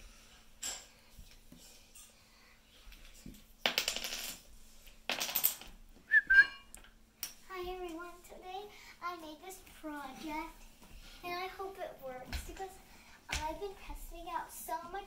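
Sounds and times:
dominoes clattering on wooden floor: 0:03.6 - 0:04.5, 0:05.1 - 0:05.7.

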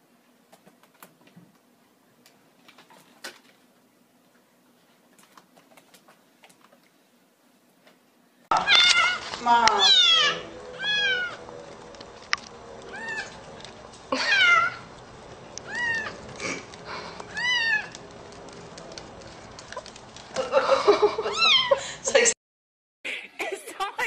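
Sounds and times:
kitten mewing: 0:08.5 - 0:11.4, 0:14.2 - 0:14.9, 0:15.6 - 0:16.7, 0:17.3 - 0:17.9.

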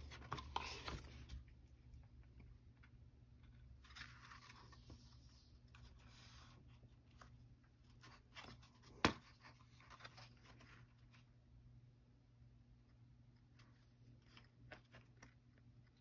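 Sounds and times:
paper rustling and scraping: 0:00.0 - 0:01.5, 0:03.7 - 0:11.2.

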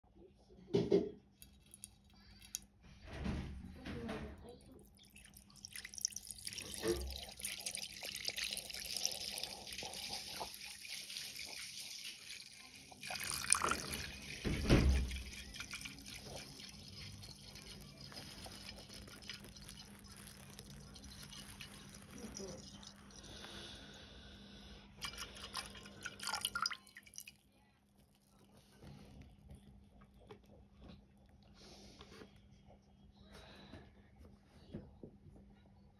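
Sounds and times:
liquid pouring into glass dish: 0:01.4 - 0:02.6, 0:04.7 - 0:23.8, 0:25.0 - 0:28.5.

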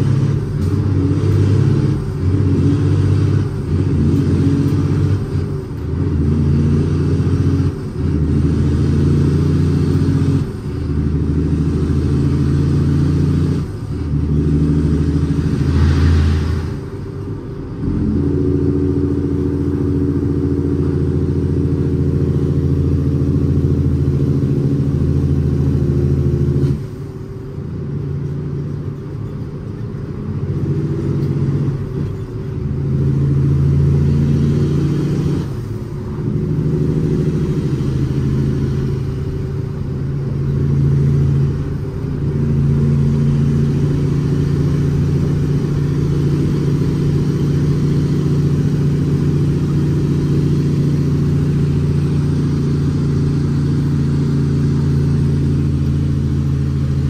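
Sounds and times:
diesel truck engine drone: 0:00.0 - 0:57.0.

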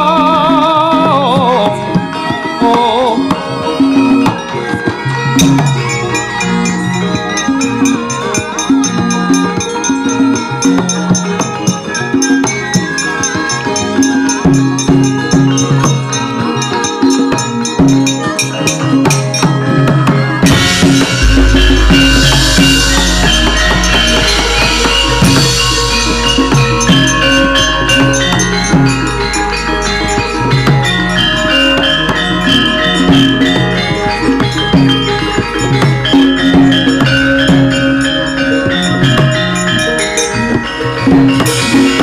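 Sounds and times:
wavering held note: 0:20.4 - 0:34.1
gamelan playing: 0:20.4 - 0:42.0.

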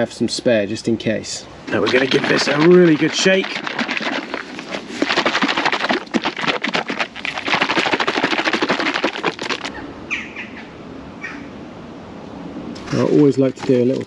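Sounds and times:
faint liquid pouring: 0:01.7 - 0:09.8
liquid sloshing in shaken bottle: 0:01.7 - 0:09.8, 0:12.8 - 0:14.0.

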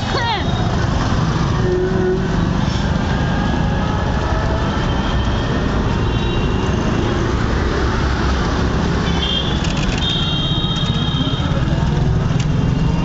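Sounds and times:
road noise: 0:00.0 - 0:13.0
vehicle engines rumbling: 0:00.0 - 0:13.0.

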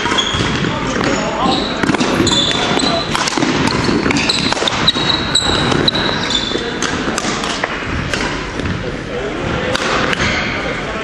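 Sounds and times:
shoes squeaking on wooden floor: 0:00.0 - 0:06.8
rackets hitting shuttlecock: 0:00.0 - 0:08.8, 0:09.6 - 0:10.6.

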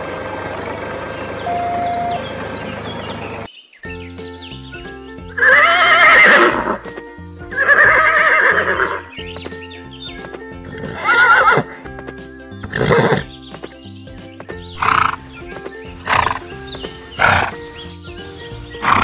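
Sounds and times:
background music with steady beat: 0:03.9 - 0:19.0
horse whinnies: 0:05.4 - 0:06.8, 0:07.5 - 0:09.1, 0:10.7 - 0:11.8, 0:12.6 - 0:13.3, 0:14.8 - 0:15.3, 0:16.0 - 0:16.5, 0:17.2 - 0:17.6.

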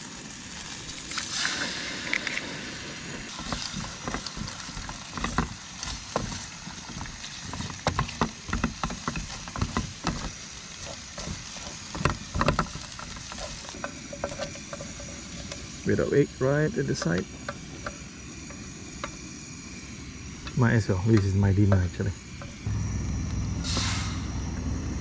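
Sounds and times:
frying hiss: 0:00.0 - 0:24.8
egg cracking: 0:00.5 - 0:15.9
spatula scraping a tin: 0:03.3 - 0:15.8.

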